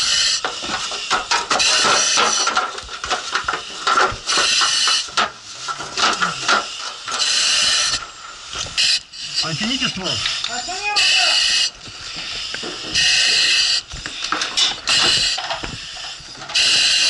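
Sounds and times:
knocks and rustling: 0.4s - 7.2s
breathing through mask with hiss: 6.0s - 17.0s.

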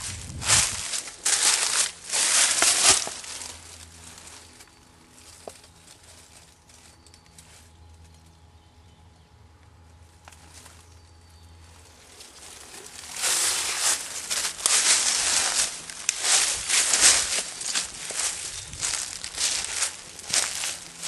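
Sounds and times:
footsteps crunching through dry vegetation: 0.0s - 8.1s, 10.4s - 21.0s
faint low hum: 0.0s - 21.0s.

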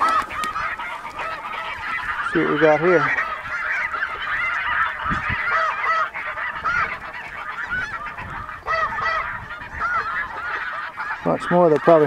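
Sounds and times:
geese honking: 0.0s - 12.0s
wind on microphone: 3.0s - 11.2s.

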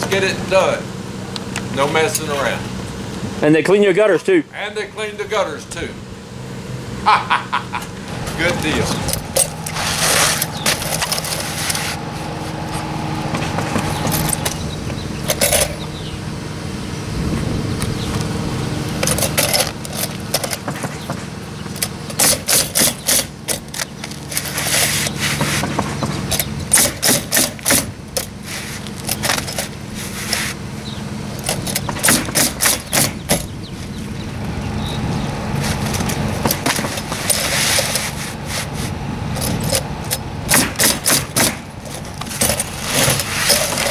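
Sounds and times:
steady machine hum: 0.0s - 43.9s
pneumatic nailer firing: 19.0s - 30.6s, 31.4s - 33.5s, 39.5s - 43.9s.

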